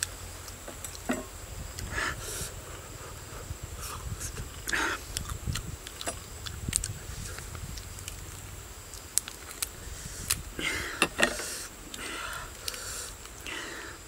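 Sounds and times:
wet smacking eating noises: 4.3 - 10.4.

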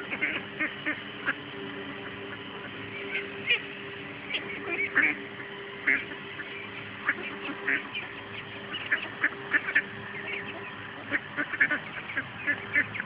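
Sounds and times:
ducks quacking: 0.0 - 13.0.

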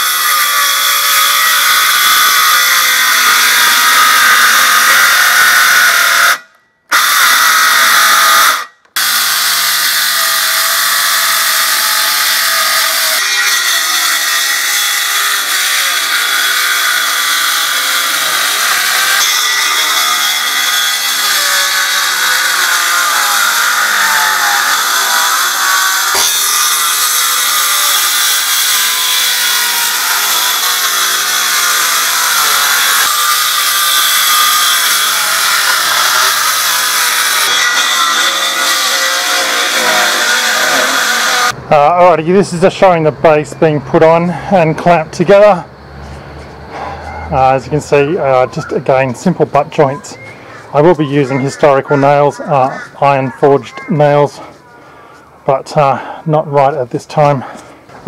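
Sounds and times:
circular saw cutting wood: 0.0 - 41.6.

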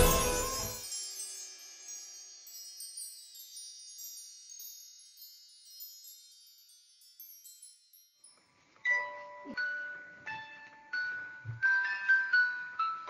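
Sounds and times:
low music: 0.0 - 0.8
high tinkling chimes: 0.0 - 9.1.

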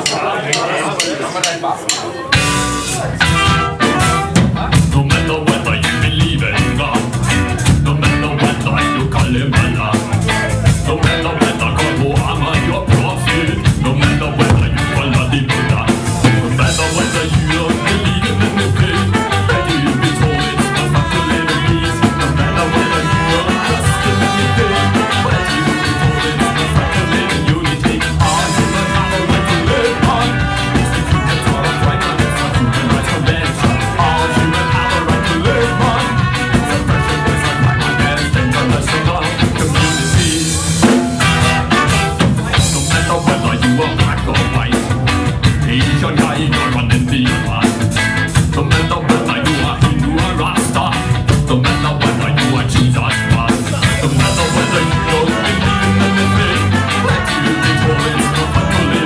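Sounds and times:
drum hits: 0.0 - 46.4
live band playing ska music: 0.0 - 59.0.

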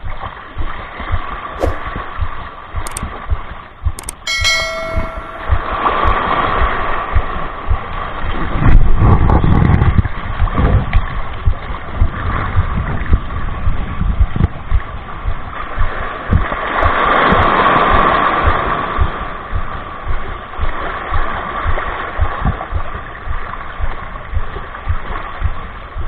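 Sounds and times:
wind buffeting microphone: 0.0 - 26.0
waves splashing on rocks: 15.6 - 19.4.

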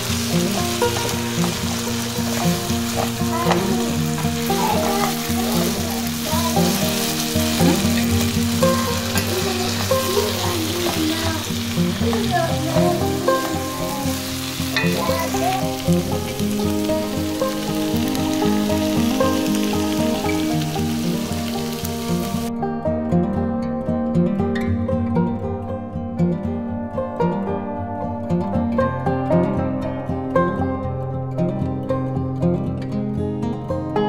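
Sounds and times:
beef sizzling in a frying pan: 0.0 - 22.5
music: 0.0 - 34.0.

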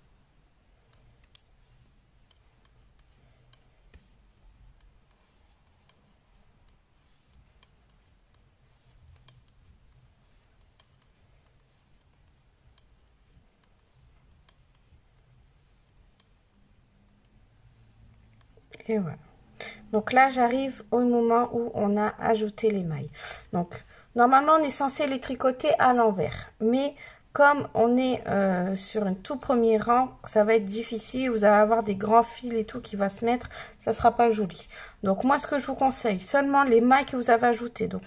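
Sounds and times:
low room hum: 0.0 - 38.0
knitting needles clicking: 0.8 - 18.9.

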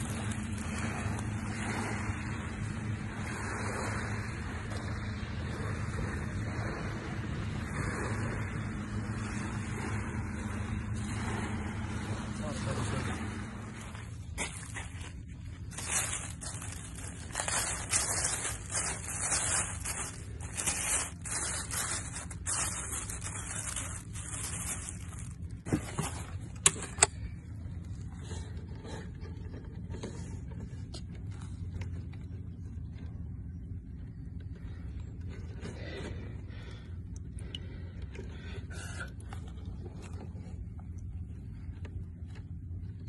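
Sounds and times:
steady low rumble: 0.0 - 43.0
plastic bag crinkling: 14.5 - 26.4.

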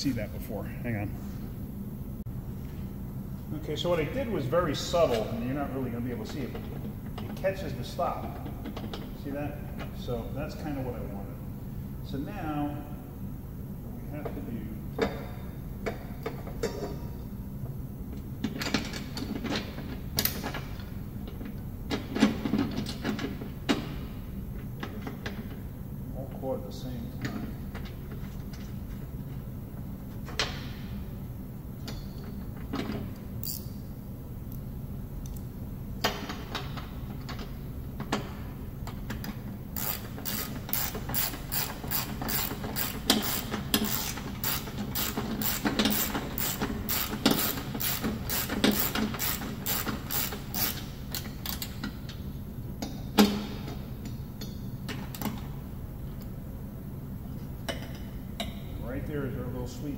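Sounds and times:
ratcheting wrench clicking: 33.4 - 33.7, 39.8 - 51.9.

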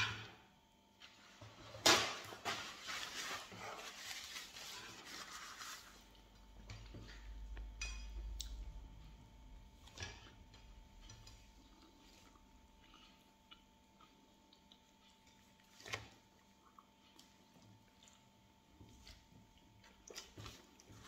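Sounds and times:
paper napkin rustling: 1.0 - 6.1.

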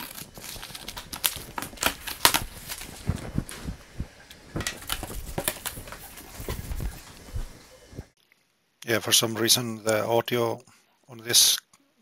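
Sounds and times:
packing tape pulled open: 0.0 - 3.6
cardboard box crackling and rustling: 0.0 - 8.1.

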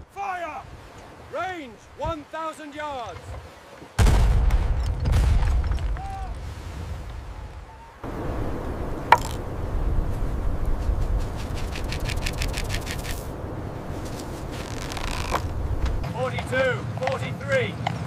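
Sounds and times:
sand ticking onto paper: 10.8 - 13.2.

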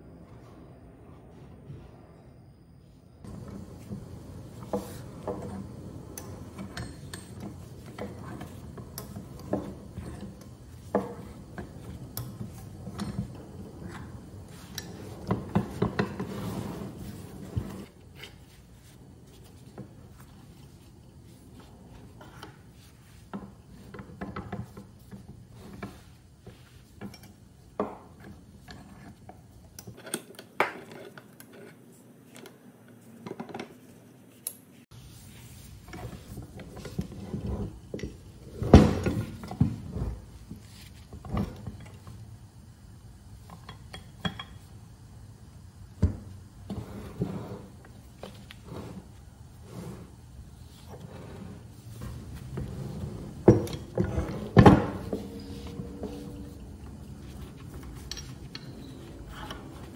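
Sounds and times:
metal vise clanking and scraping: 4.6 - 18.4, 50.8 - 59.9.

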